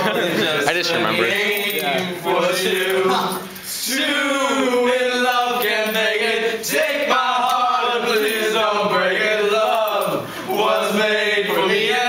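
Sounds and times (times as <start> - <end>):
men singing a chant: 0.0 - 12.0.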